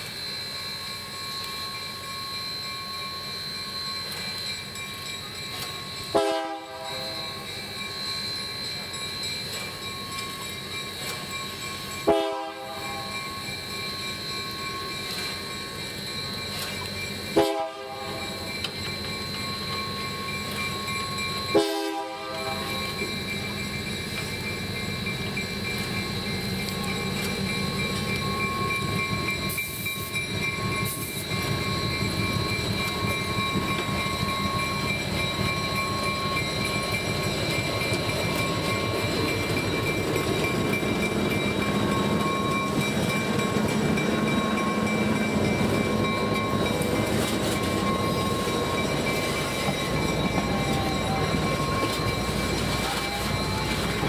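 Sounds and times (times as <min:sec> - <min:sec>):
diesel locomotive rumble: 0:00.0 - 0:54.0
train horn blasts: 0:06.1 - 0:07.3, 0:12.1 - 0:13.2, 0:17.4 - 0:18.4, 0:21.5 - 0:22.7.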